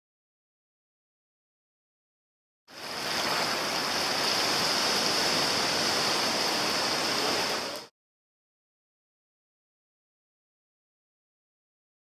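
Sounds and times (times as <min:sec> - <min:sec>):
water rushing: 0:02.7 - 0:07.9.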